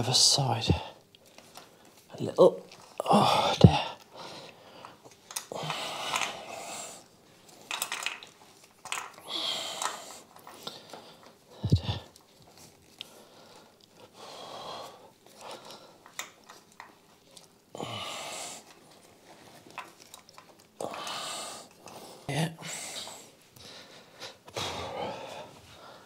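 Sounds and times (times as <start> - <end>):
man breathing heavily through nose: 3.0 - 7.2, 9.2 - 12.2, 13.0 - 16.2, 17.7 - 19.1, 20.8 - 26.0.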